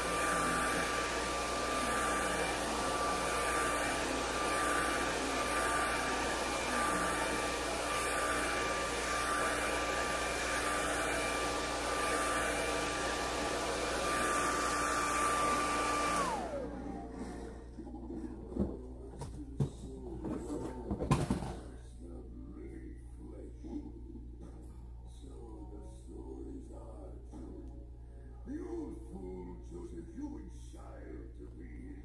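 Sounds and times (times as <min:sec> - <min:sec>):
hair dryer running: 0:00.0 - 0:17.6.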